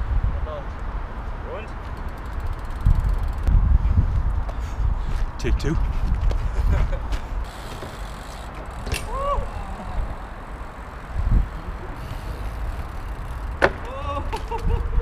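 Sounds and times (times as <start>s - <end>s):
short squeaks: 7.4s - 9.6s
steady low rumble: 8.4s - 15.0s
bike tyres knocking on wooden rail: 12.7s - 14.8s.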